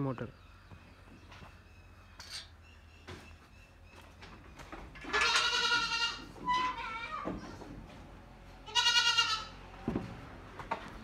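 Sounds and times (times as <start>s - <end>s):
goats bleating: 5.1s - 7.3s, 8.6s - 9.6s.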